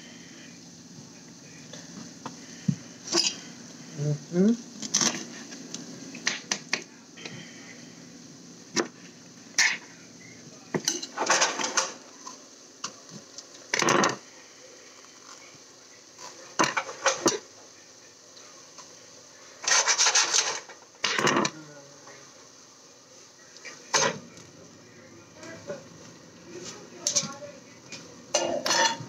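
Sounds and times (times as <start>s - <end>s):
scraping and rubbing: 19.6s - 21.4s.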